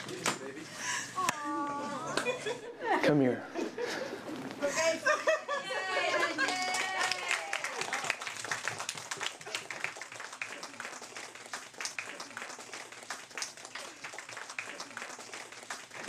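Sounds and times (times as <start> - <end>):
people clapping: 5.9 - 16.0.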